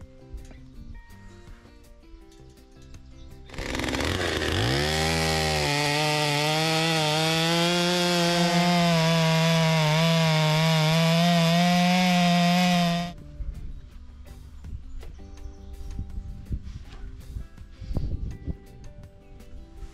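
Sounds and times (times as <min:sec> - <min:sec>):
chainsaw cutting log: 0:03.5 - 0:13.1.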